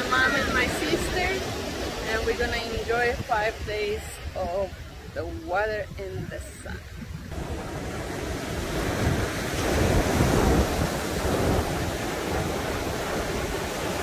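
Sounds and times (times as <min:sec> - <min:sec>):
wind buffeting microphone: 0:00.0 - 0:14.0
surf breaking on beach: 0:07.3 - 0:14.0.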